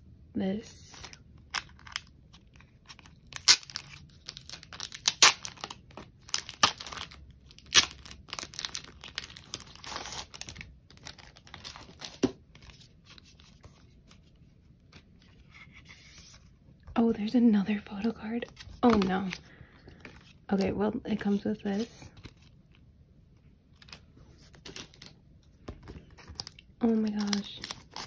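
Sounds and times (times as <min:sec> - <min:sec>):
packaging being torn and crinkled: 0:01.0 - 0:13.2, 0:23.8 - 0:25.2, 0:26.2 - 0:28.0.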